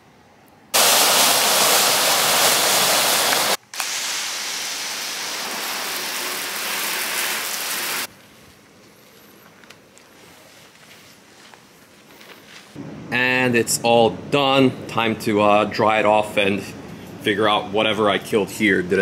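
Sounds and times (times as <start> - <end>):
hose spray rinsing car: 0.8 - 8.1
hose spraying water into bucket: 0.8 - 8.1.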